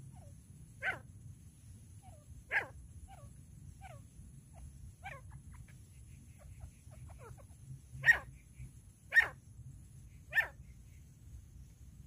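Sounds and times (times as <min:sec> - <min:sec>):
francolin harsh calls: 0:01.9 - 0:11.2.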